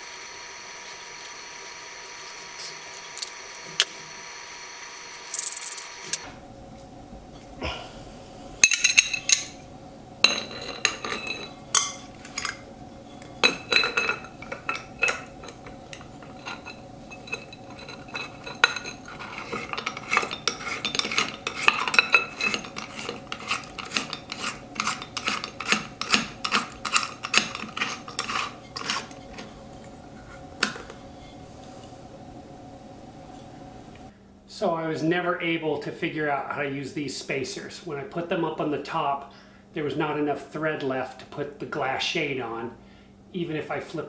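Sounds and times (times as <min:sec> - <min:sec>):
glass lamp shade clinking: 0:08.6 - 0:09.6, 0:10.2 - 0:30.0.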